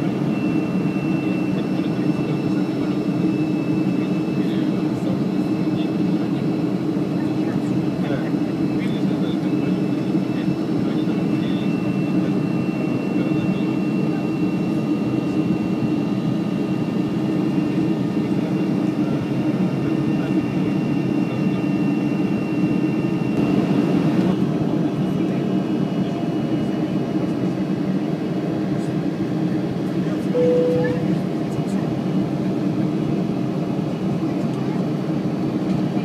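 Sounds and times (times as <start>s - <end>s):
jet engine cabin noise: 0.0s - 36.0s
faint high whine: 30.3s - 31.2s.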